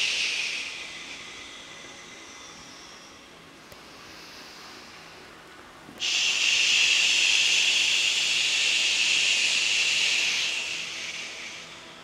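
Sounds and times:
person exhaling shh sound: 0:06.0 - 0:11.8.

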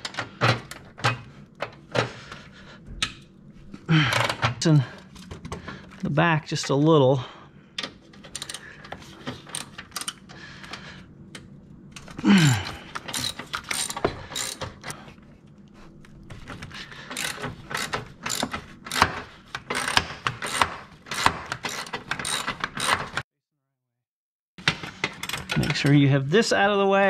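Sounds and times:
socket ratchet clicking: 0:13.0 - 0:15.0, 0:17.2 - 0:23.2.

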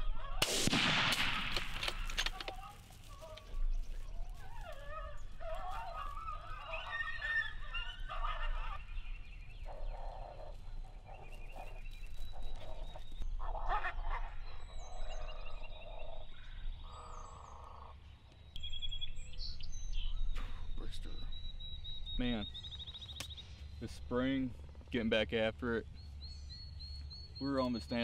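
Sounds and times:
animal calls: 0:01.9 - 0:18.0.

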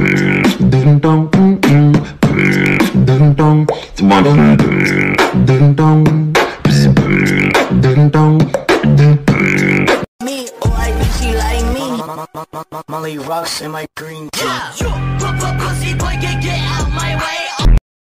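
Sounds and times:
voice-like hook: 0:00.0 - 0:10.0
hip-hop beat: 0:00.0 - 0:17.8.

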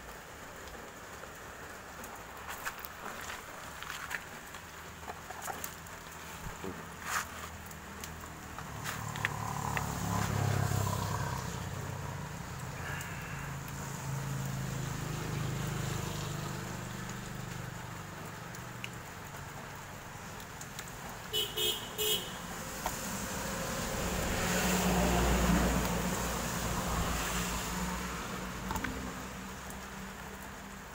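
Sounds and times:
passing vehicle rumble: 0:05.7 - 0:18.0, 0:22.4 - 0:30.5.

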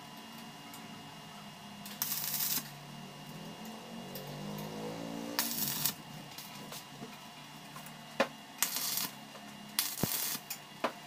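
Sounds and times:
arc welder crackling: 0:01.8 - 0:06.9, 0:08.6 - 0:10.9.

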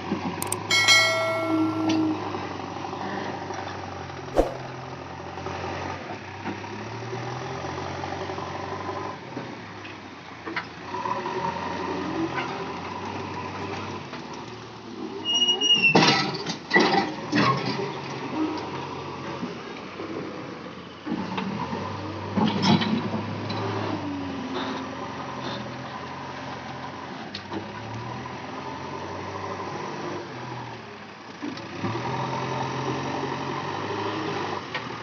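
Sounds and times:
single click: 0:00.4 - 0:01.9.

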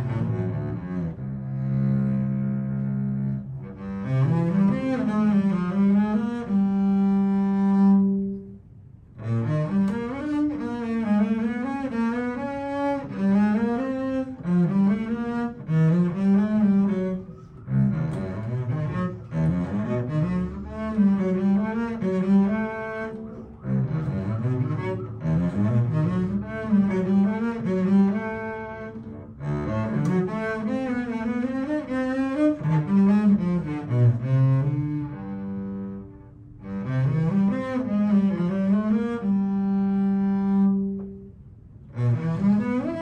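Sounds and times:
bowed double bass melody: 0:00.0 - 0:43.0.

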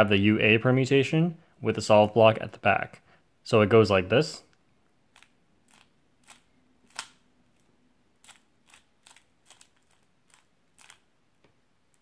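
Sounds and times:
puzzle cube plastic clicks: 0:05.1 - 0:11.1.

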